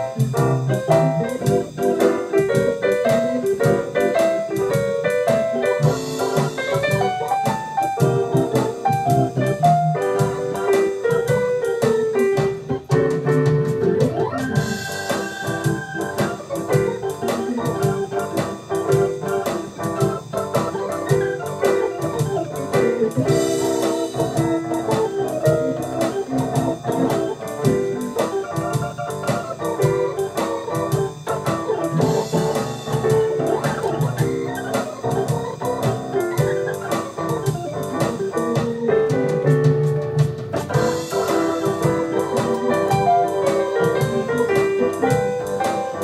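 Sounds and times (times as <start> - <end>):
blues piano runs and chords: 0.0 - 46.0
sustained organ chords: 13.9 - 38.9.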